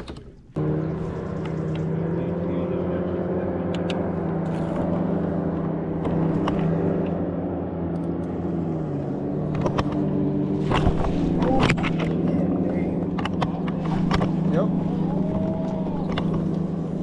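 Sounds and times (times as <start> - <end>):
boat motor humming: 0.0 - 17.0
sharp clicks: 3.7 - 4.6.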